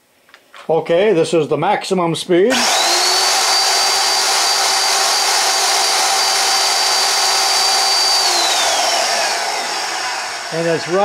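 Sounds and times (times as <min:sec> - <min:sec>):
band saw whining: 0:02.5 - 0:11.0.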